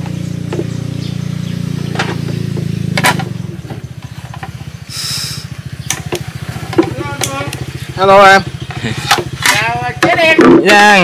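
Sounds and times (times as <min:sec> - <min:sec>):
small boat engine running: 0:00.0 - 0:10.4
sharp knocks: 0:01.9 - 0:04.6, 0:05.9 - 0:07.5
short hiss: 0:04.9 - 0:05.5.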